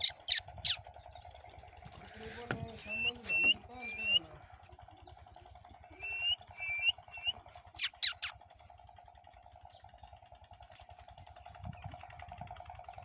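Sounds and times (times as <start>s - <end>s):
sharp descending bird squawks: 0.0s - 0.8s, 6.0s - 8.3s
bird chirps: 0.0s - 8.4s
steady pulsing hum: 0.0s - 13.0s.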